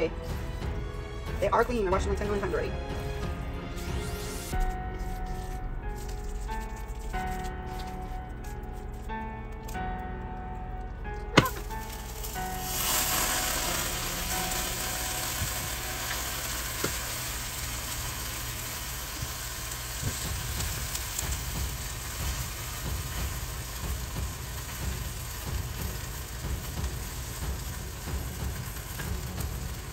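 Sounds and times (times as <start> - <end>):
sauce sizzling in a saucepan: 11.6 - 29.9.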